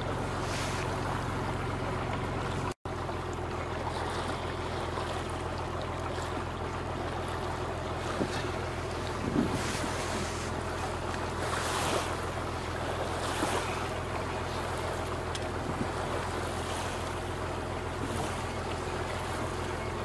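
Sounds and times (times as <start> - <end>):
boat engine running: 0.0 - 20.0
water washing past hull: 0.0 - 20.0.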